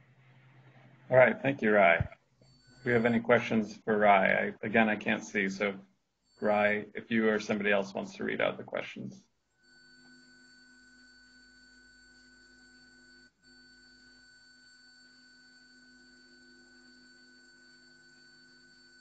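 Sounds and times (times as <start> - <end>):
low hiss: 0.0 - 2.1, 2.9 - 5.8, 6.4 - 9.2
faint electrical hum: 0.0 - 5.8.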